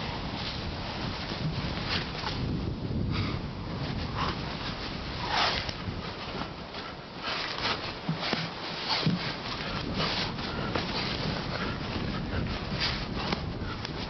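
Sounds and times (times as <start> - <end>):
hard breathing: 2.9 - 5.7, 6.3 - 14.0
bodies and clothing scuffling: 3.8 - 14.0.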